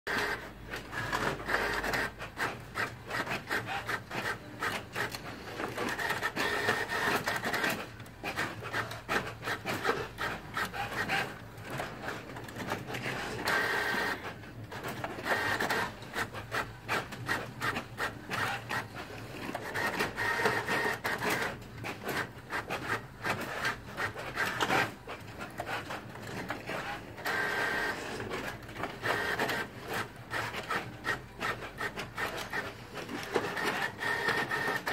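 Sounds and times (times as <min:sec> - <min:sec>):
printer motor whine: 0:00.1 - 0:02.2, 0:02.8 - 0:07.8, 0:12.8 - 0:16.2, 0:17.0 - 0:21.6, 0:26.7 - 0:34.9.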